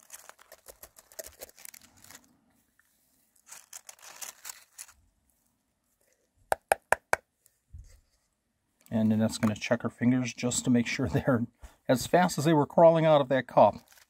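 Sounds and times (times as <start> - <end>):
dry moss rustling and crackling: 0.0 - 6.1.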